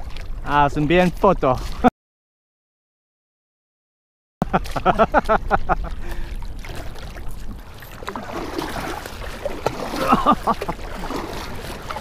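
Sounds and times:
small waves lapping against a hull: 0.0s - 1.9s, 4.4s - 12.0s.

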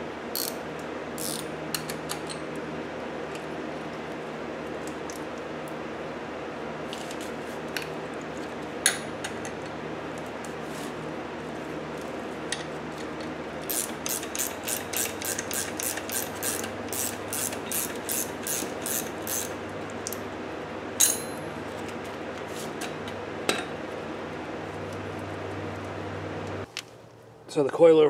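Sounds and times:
ratchet wrench clicking: 0.4s - 0.6s, 1.2s - 2.1s, 13.7s - 19.6s.

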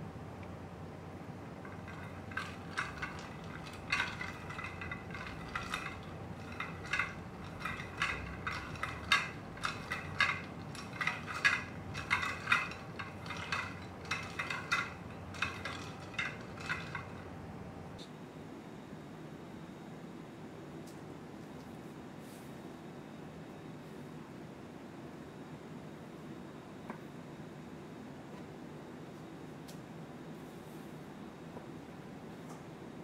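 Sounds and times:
spatula scraping glass bowl: 1.7s - 17.2s.

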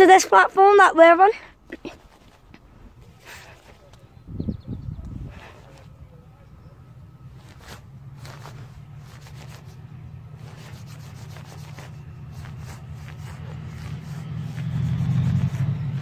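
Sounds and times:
rubbing and clicking on microphone: 1.7s - 6.0s, 7.4s - 9.8s, 10.4s - 16.0s
diesel locomotive engine drone: 2.5s - 16.0s.

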